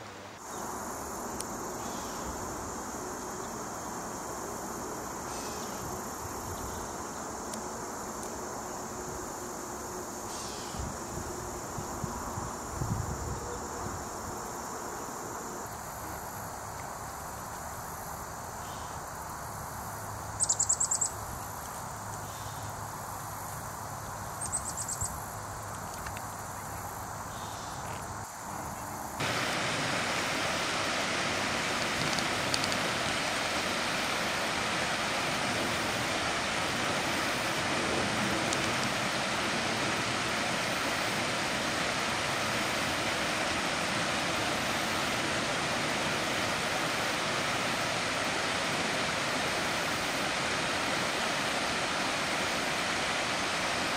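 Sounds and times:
high insect drone: 0:00.0 - 0:53.9
stream running over rocks: 0:29.2 - 0:53.9.

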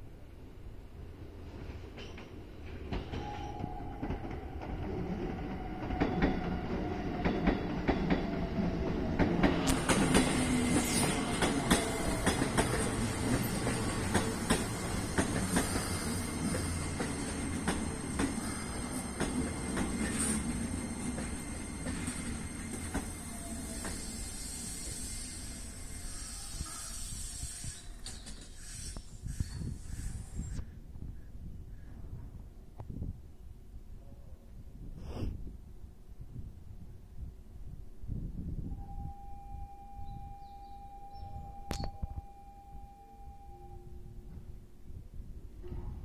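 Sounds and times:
train wheels rumbling on rail: 0:01.3 - 0:30.7
train motor whine: 0:03.8 - 0:30.1
high thin squeal: 0:10.2 - 0:12.2, 0:19.9 - 0:30.7.

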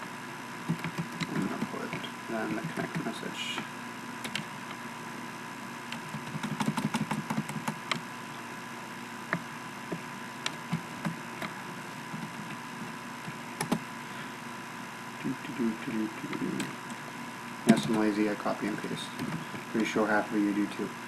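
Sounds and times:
faint electrical hum: 0:00.0 - 0:21.0
keyboard and mouse clicking: 0:00.6 - 0:03.1, 0:04.2 - 0:04.5, 0:05.9 - 0:08.0, 0:13.2 - 0:13.8, 0:17.7 - 0:18.1.

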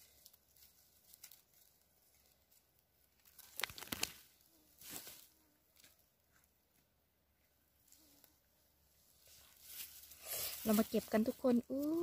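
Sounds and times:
dry leaf litter crackling: 0:00.0 - 0:02.6, 0:09.3 - 0:12.0.

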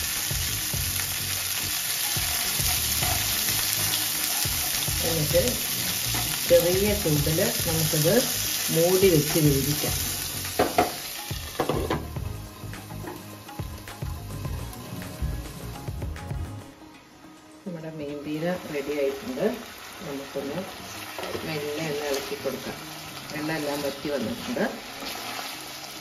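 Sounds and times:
beans sizzling in hot oil: 0:00.0 - 0:15.8, 0:18.2 - 0:26.0
glass lid knocking on pan: 0:10.6 - 0:11.0, 0:11.6 - 0:12.1.

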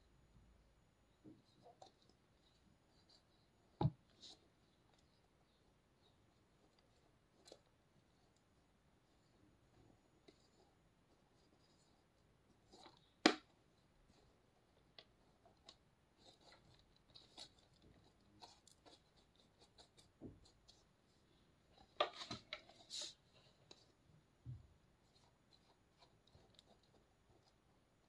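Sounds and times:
plastic containers handled: 0:21.7 - 0:23.9.

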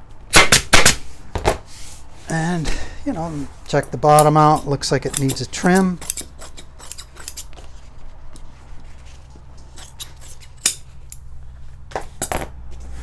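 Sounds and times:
scissors snipping fabric: 0:04.1 - 0:07.6.

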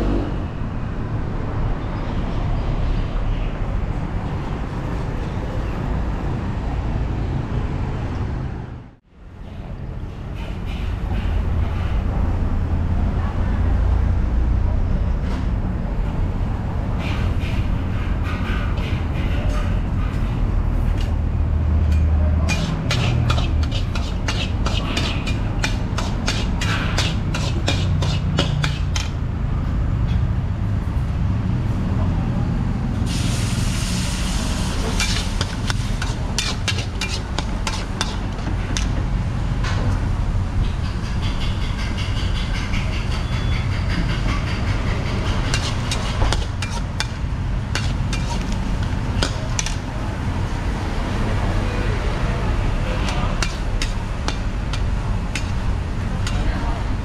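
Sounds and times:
metal utensils scraping a wok: 0:22.4 - 0:29.2, 0:34.6 - 0:39.0, 0:40.8 - 0:49.8, 0:53.0 - 0:57.0
gas burner rumble: 0:32.9 - 0:41.7, 0:43.8 - 0:57.0
sizzling in a wok: 0:33.1 - 0:38.4.

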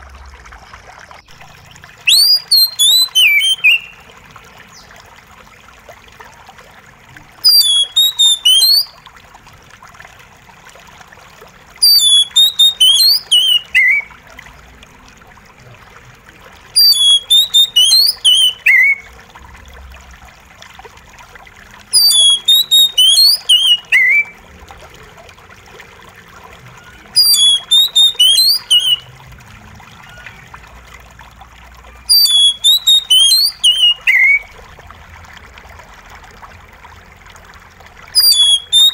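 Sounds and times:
water trickling: 0:00.0 - 0:38.9
bird singing whistled notes: 0:01.2 - 0:04.0, 0:07.4 - 0:09.0, 0:11.8 - 0:14.1, 0:16.8 - 0:19.0, 0:22.0 - 0:24.4, 0:27.2 - 0:29.1, 0:32.0 - 0:34.5, 0:38.2 - 0:38.9.

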